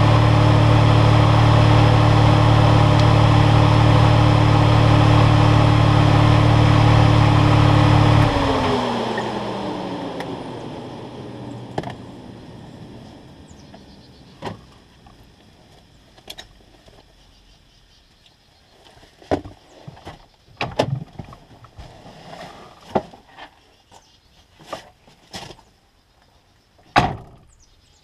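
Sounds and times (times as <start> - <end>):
engine switched off: 0.0 - 15.4.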